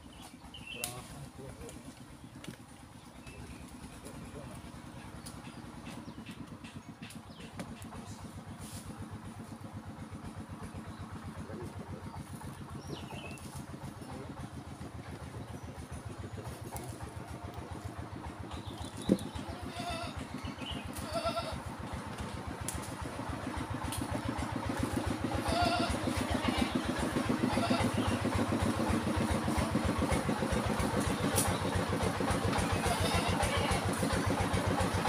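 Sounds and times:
chainsaw idling: 0:00.0 - 0:35.0.

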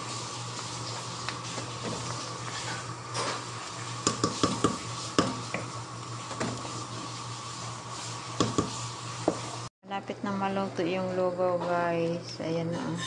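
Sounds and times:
wooden spatula scraping metal pot: 0:12.6 - 0:13.0.

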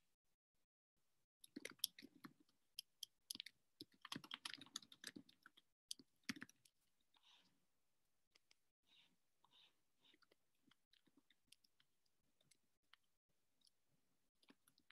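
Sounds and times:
faint keyboard typing: 0:01.5 - 0:07.4.

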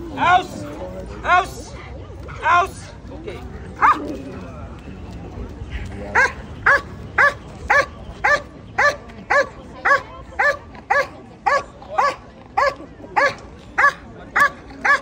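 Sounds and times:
dog barking: 0:06.2 - 0:15.0.

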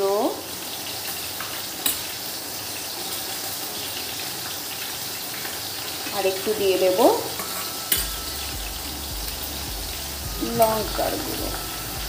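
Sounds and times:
fish sizzling in a pan: 0:00.0 - 0:12.0
spoon tapping glass bowl: 0:07.4 - 0:08.4.

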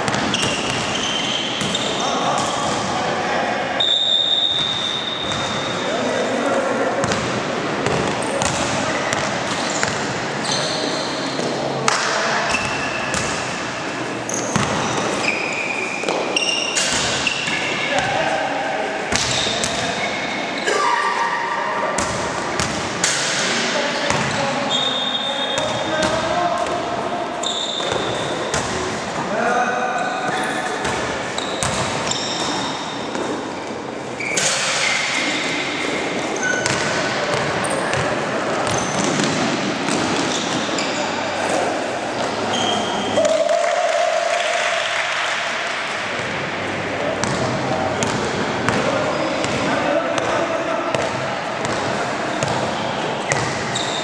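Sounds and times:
basketball bouncing on court: 0:00.0 - 0:01.8, 0:07.0 - 0:10.2, 0:11.4 - 0:13.5, 0:14.3 - 0:15.4, 0:16.0 - 0:18.2, 0:22.0 - 0:23.0, 0:24.1 - 0:24.4, 0:27.8 - 0:29.0, 0:30.8 - 0:33.4, 0:36.6 - 0:40.7, 0:47.2 - 0:50.3, 0:50.9 - 0:53.9
sneaker squeaks: 0:00.0 - 0:02.9, 0:03.8 - 0:06.0, 0:07.0 - 0:18.5, 0:19.1 - 0:23.4, 0:24.0 - 0:29.0, 0:30.0 - 0:43.4, 0:47.2 - 0:50.0, 0:51.0 - 0:54.0
echoing hubbub: 0:00.0 - 0:54.0
gym hall noise: 0:00.0 - 0:54.0
basketball dribbling: 0:14.5 - 0:15.1, 0:36.6 - 0:38.0, 0:47.2 - 0:50.3, 0:50.9 - 0:52.6.

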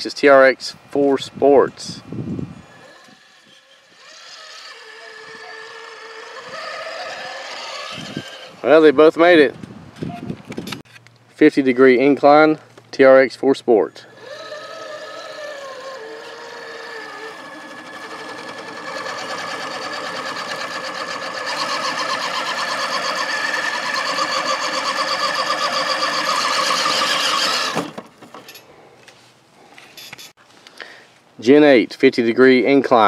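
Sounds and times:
electric motor whining: 0:02.4 - 0:08.6, 0:14.1 - 0:28.0.

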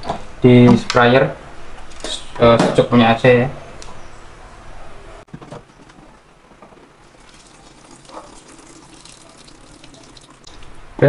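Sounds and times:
water pouring into plastic bottle: 0:07.0 - 0:10.5.

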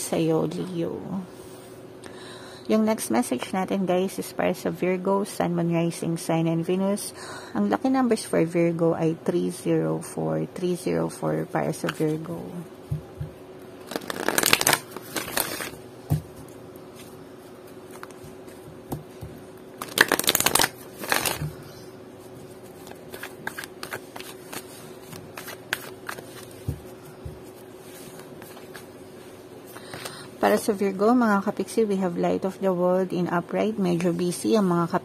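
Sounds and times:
faint steady hum: 0:00.0 - 0:35.0
cards rustling while shuffled: 0:13.8 - 0:15.8, 0:19.8 - 0:21.6, 0:22.4 - 0:29.0.

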